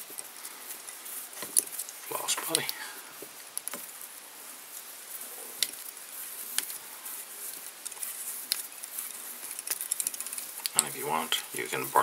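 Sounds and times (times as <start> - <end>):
thread rustling: 0.0 - 12.0
sharp ticks: 7.8 - 11.0.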